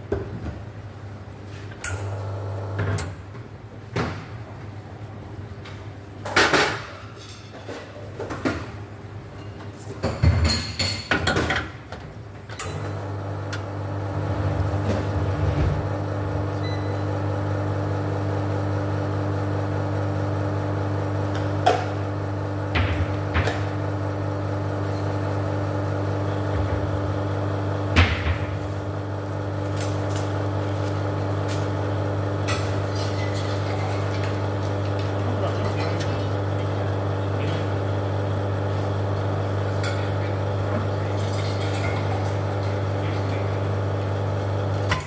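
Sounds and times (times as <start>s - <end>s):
low machine hum: 12.6s - 45.0s.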